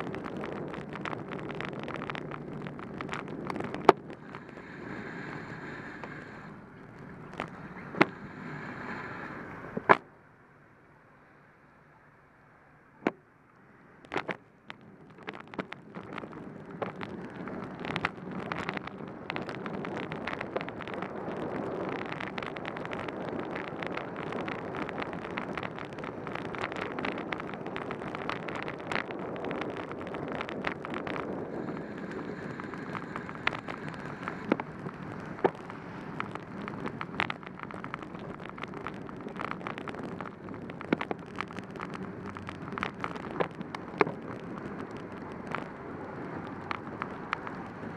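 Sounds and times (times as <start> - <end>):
wet tyres hissing: 0.0 - 9.9, 16.5 - 47.9
wind: 0.0 - 47.9
sharp clicks and taps: 14.0 - 21.0.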